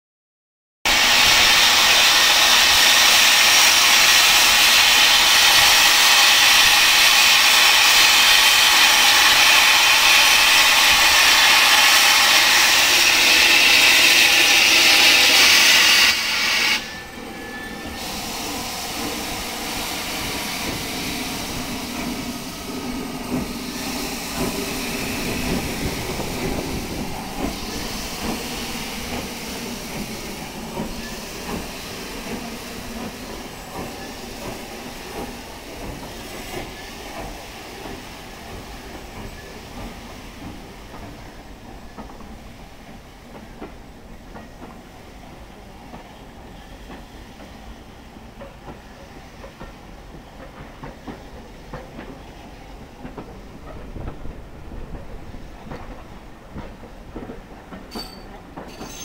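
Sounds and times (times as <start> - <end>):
steam hissing: 0.9 - 43.4
steam locomotive moving off: 0.9 - 59.0.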